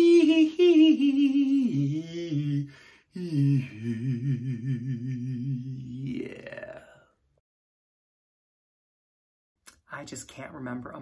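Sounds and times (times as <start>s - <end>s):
man singing with vibrato: 0.0s - 6.9s.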